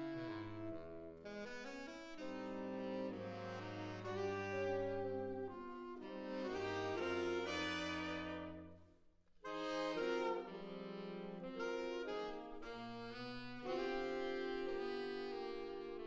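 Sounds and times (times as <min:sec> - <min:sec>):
saxophones playing sustained chords: 0:00.0 - 0:08.9, 0:09.5 - 0:16.0.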